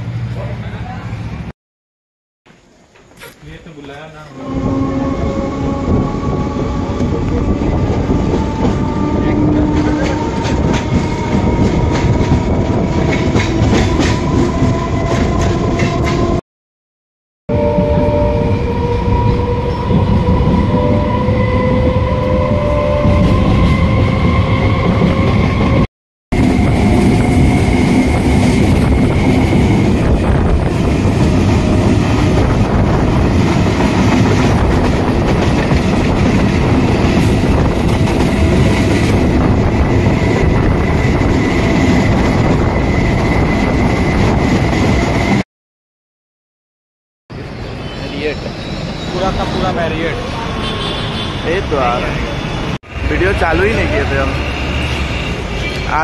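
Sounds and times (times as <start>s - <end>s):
train wheels rumbling on rails: 3.6s - 16.4s, 17.8s - 45.4s
train whine rising in pitch: 17.5s - 34.9s.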